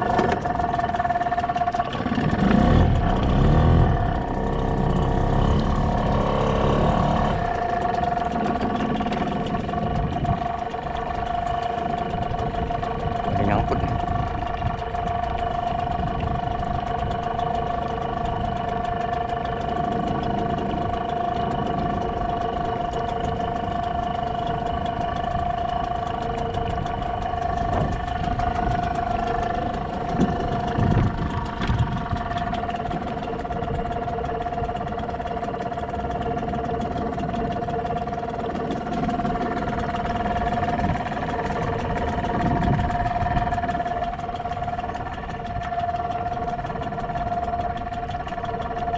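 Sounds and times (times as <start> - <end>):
boat engine idling: 0.0 - 48.9
wind and water rumble: 0.0 - 48.9.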